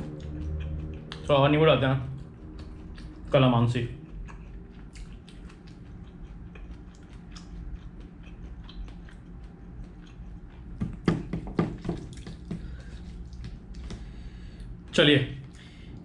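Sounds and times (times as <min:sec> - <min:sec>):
low room hum: 0:00.0 - 0:16.0
sharp knocks: 0:10.8 - 0:12.7.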